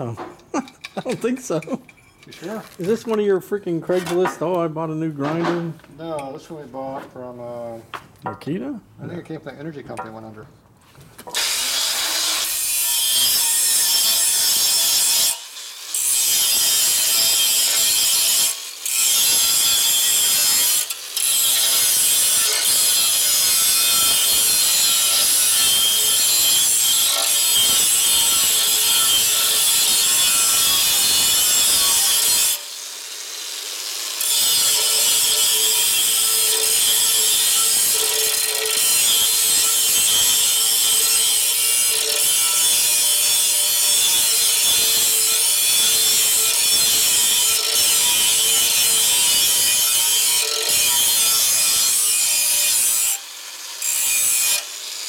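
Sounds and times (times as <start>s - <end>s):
angle grinder grinding metal: 11.3s - 55.0s.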